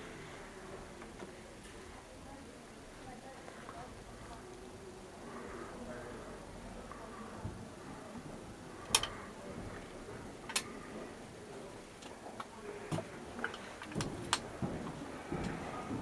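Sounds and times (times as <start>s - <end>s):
faint room noise: 0.0s - 16.0s
sharp clicks and taps: 8.9s - 9.2s.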